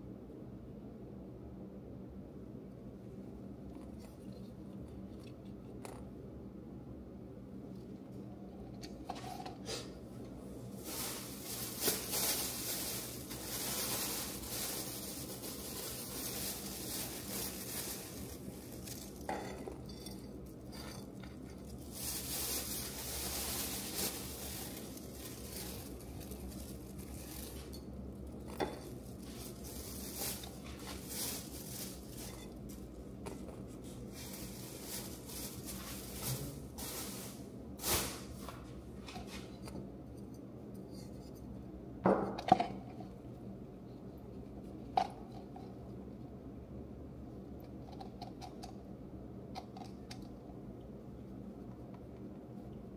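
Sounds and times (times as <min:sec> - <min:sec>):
sizzling: 0:10.8 - 0:28.0.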